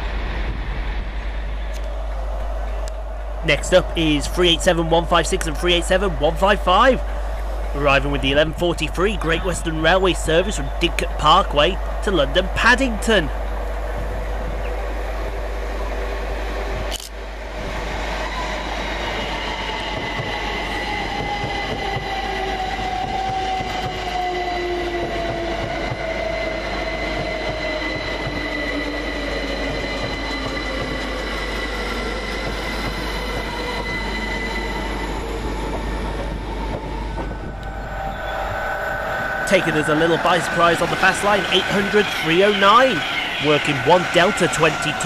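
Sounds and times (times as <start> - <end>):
wheels rushing on rail: 0.0 - 45.0
electric train traction whine: 13.3 - 45.0.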